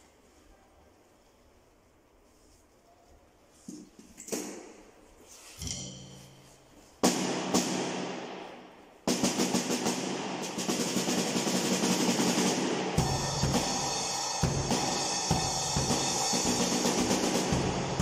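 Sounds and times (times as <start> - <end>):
cymbal crash: 7.0 - 18.0
fast drum strokes: 7.0 - 18.0
bass drum: 11.7 - 18.0.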